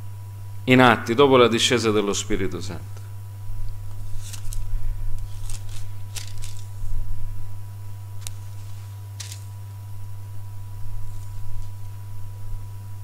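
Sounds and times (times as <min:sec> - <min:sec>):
low electrical hum: 0:00.0 - 0:13.0
paper pages rustling: 0:03.9 - 0:06.9, 0:08.2 - 0:09.5.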